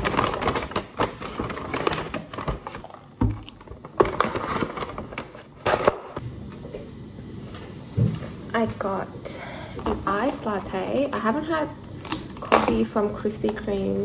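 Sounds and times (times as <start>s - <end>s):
paper bag rustling: 0.0s - 5.9s.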